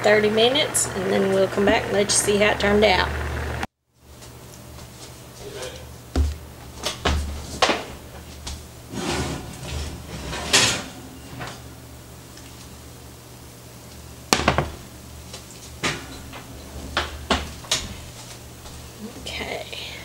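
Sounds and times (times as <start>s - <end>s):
oven door and rack knocking: 8.9s - 11.6s, 14.3s - 15.0s, 15.8s - 18.9s
skillet clunking on stove: 14.3s - 14.9s, 15.8s - 18.2s.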